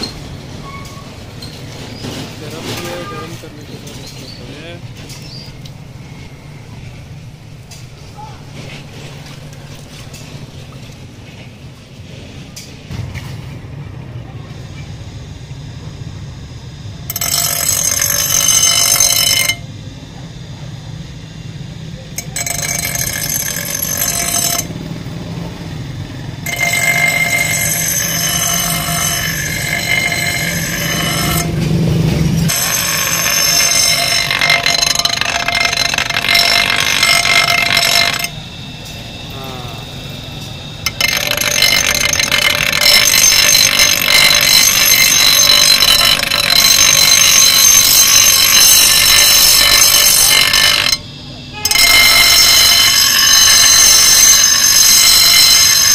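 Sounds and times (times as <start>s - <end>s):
grinder wheel spinning free: 17.1s - 19.7s, 22.1s - 24.8s, 26.4s - 31.6s, 32.4s - 38.4s, 40.8s - 55.9s
grinder sharpening steel: 22.2s - 24.7s, 26.5s - 31.5s, 32.5s - 38.3s, 40.9s - 51.0s, 51.6s - 55.9s.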